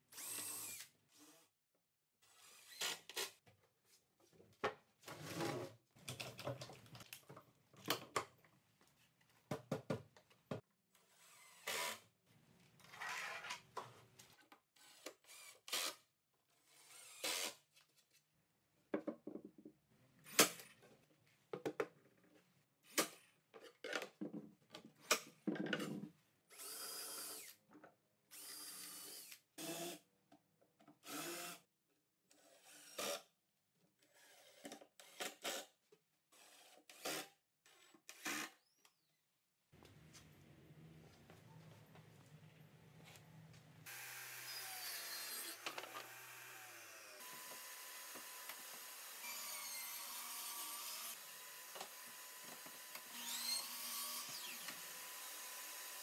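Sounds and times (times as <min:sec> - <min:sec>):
cordless drill driving screws: 0:00.1 - 0:01.4, 0:02.3 - 0:03.3, 0:11.1 - 0:12.0, 0:14.8 - 0:16.0, 0:16.7 - 0:17.6, 0:43.9 - 0:56.0.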